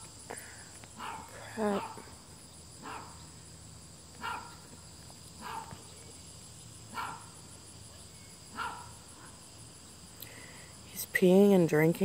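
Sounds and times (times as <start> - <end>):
high-pitched insect chorus: 0.0 - 12.0
dog barking: 1.0 - 2.1, 2.8 - 3.2, 4.2 - 4.6, 5.4 - 5.8, 6.9 - 7.3, 8.5 - 8.9.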